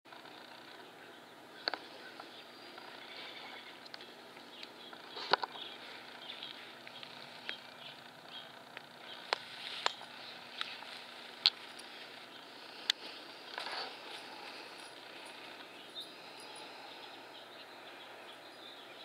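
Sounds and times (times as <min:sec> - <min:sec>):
puppy rustling in grass: 0:09.1 - 0:16.0.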